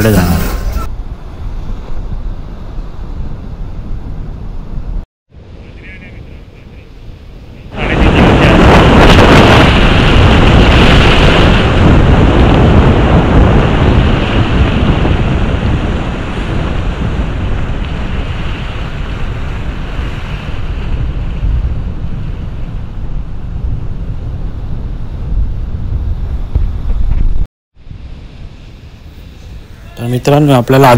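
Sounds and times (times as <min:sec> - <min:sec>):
rough sea waves rushing: 0:05.4 - 0:26.3
wind buffeting microphone: 0:06.8 - 0:30.9.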